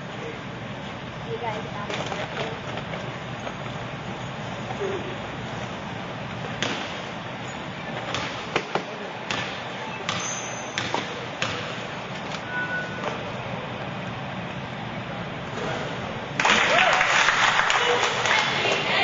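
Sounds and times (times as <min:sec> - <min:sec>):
murmur of gym: 0:00.0 - 0:19.0
basketball bouncing on wooden floor: 0:08.0 - 0:11.8.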